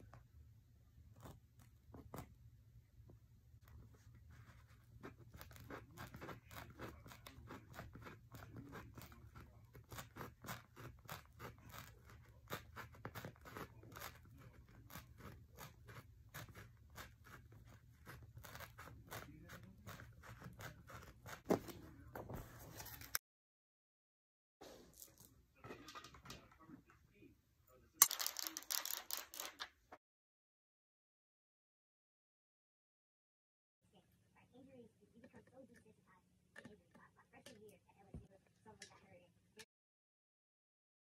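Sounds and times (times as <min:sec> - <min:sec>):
craft knife cutting foam paper: 0:03.7 - 0:22.0.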